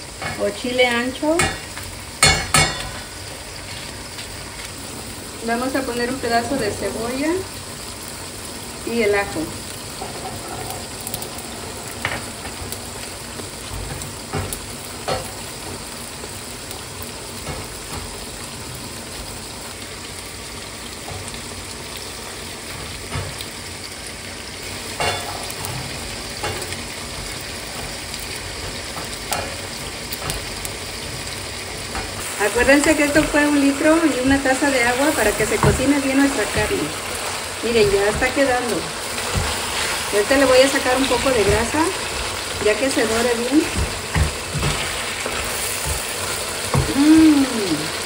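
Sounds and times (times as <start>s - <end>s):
meat sizzling in pan: 0.0s - 48.0s
tongs clicking on griddle: 27.7s - 30.5s.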